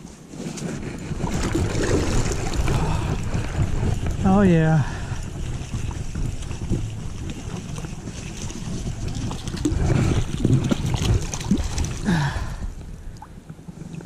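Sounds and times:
water sloshing: 0.7s - 14.0s
fish thrashing and splashing: 0.8s - 12.6s.

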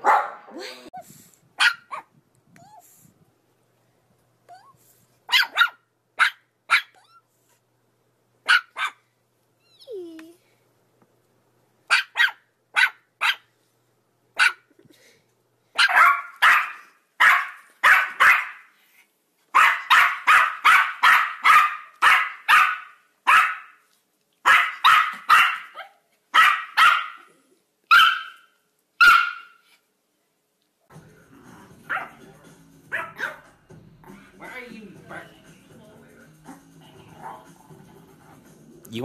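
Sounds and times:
small dog barking: 0.0s - 0.6s, 1.6s - 2.2s, 5.3s - 7.1s, 8.4s - 9.0s, 11.9s - 13.5s, 14.4s - 14.7s, 15.7s - 18.7s, 19.5s - 23.8s, 24.4s - 29.7s, 31.9s - 32.2s, 32.9s - 33.5s.

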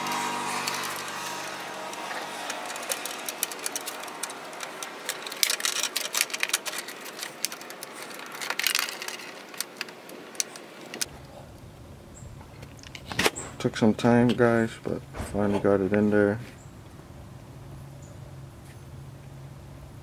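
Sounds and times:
plastic clicks and rattles: 0.6s - 11.1s.

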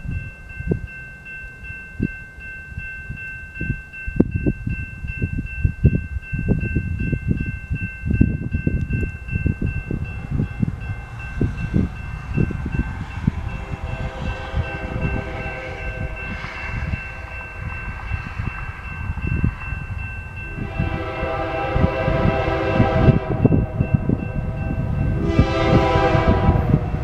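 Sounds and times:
low rumbles: 0.0s - 27.0s
railroad crossing bell ringing: 0.0s - 27.0s
train horn: 11.1s - 17.6s, 20.5s - 27.0s.

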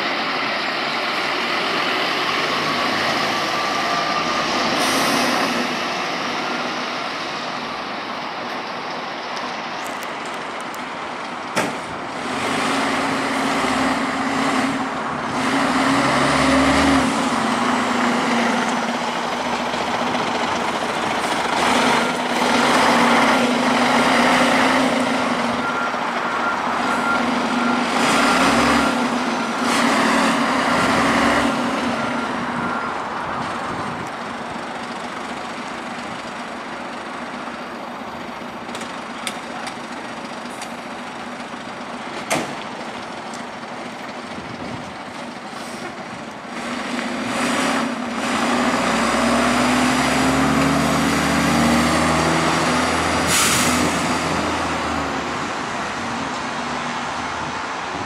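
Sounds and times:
diesel engine revving: 0.0s - 8.1s, 10.9s - 58.0s
reversing alarm beeping: 24.9s - 29.8s, 32.0s - 33.5s.

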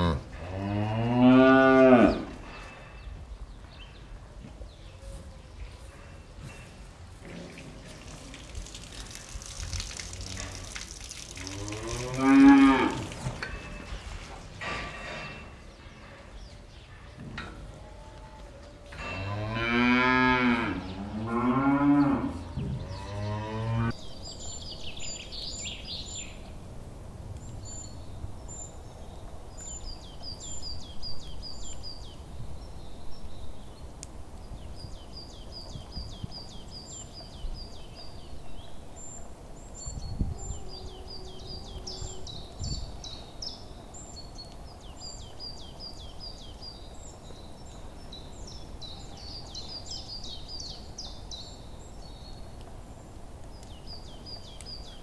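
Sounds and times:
cow mooing: 0.0s - 2.3s, 11.4s - 13.2s, 17.8s - 24.0s
small birds chirping: 27.3s - 55.0s.

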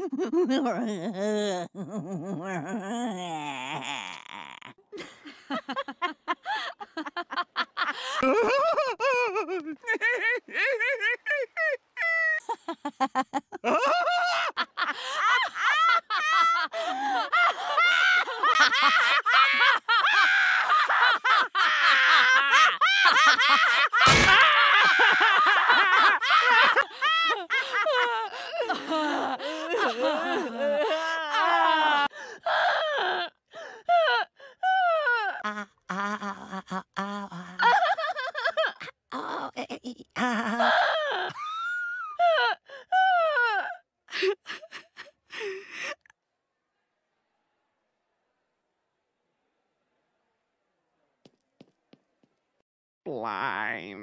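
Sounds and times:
cartoon women laughing hysterically: 0.0s - 33.1s, 33.9s - 46.0s
cartoon voices laughing: 12.4s - 29.1s
sharp crack: 24.1s - 24.6s.

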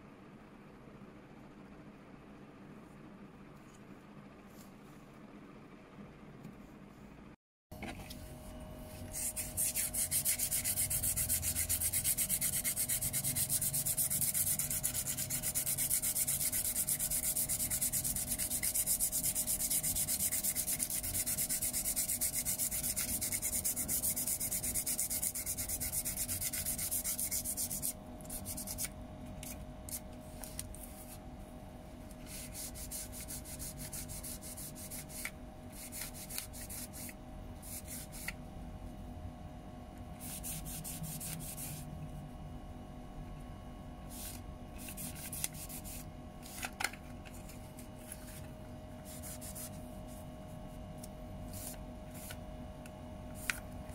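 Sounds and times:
sandpaper scratching on plastic: 9.1s - 28.9s, 32.2s - 38.3s, 44.1s - 46.0s, 49.1s - 49.8s.

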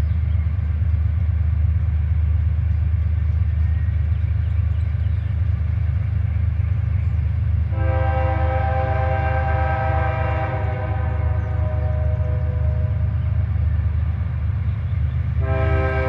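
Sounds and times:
low train rumble: 0.0s - 16.0s
locomotive air horn chord: 7.7s - 13.4s, 15.4s - 16.0s.

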